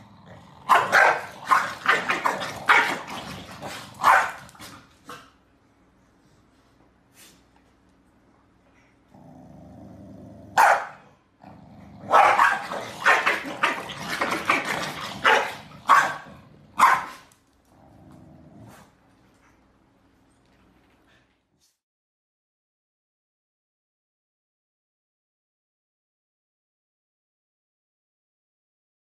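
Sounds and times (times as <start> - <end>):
dog growling: 0.0 - 5.2, 8.9 - 10.6, 11.4 - 16.8, 17.6 - 19.0
dog barking: 0.7 - 3.0, 4.0 - 4.4, 10.6 - 11.0, 12.1 - 13.8, 14.5 - 17.2.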